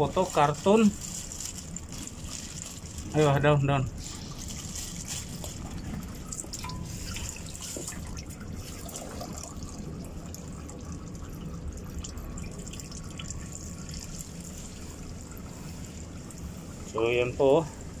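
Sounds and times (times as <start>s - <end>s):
oil trickling and dripping: 0.0s - 18.0s.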